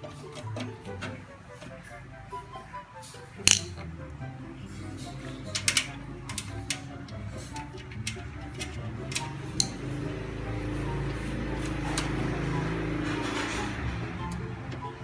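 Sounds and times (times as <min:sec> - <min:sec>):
background music: 0:00.0 - 0:15.0
screw metallic clicks: 0:03.4 - 0:03.9, 0:05.2 - 0:09.9.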